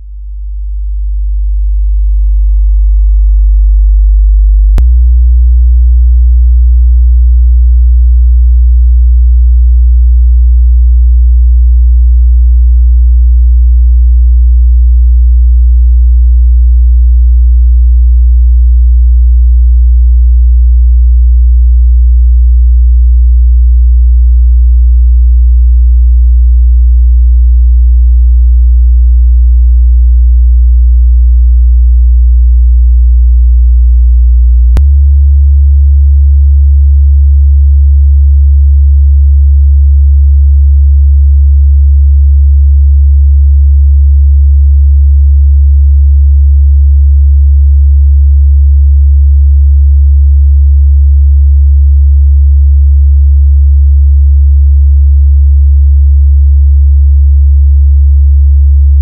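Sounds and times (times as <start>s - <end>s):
low sine-wave test tone: 0.0s - 41.0s.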